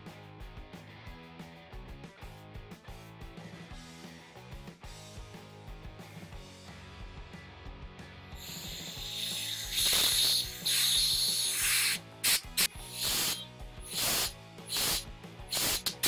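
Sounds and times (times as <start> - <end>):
background music: 0.0 - 16.0
air blow gun hissing: 8.4 - 16.0.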